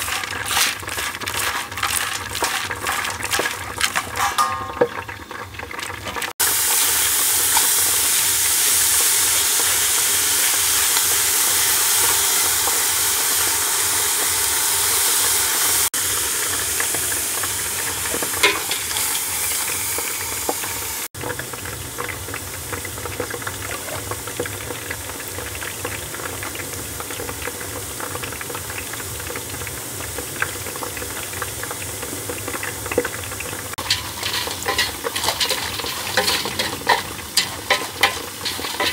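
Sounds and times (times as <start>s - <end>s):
seeds rattling against metal pot: 0.0s - 8.2s, 16.4s - 20.7s, 33.8s - 38.9s
seeds sizzling in a pot: 0.0s - 38.9s.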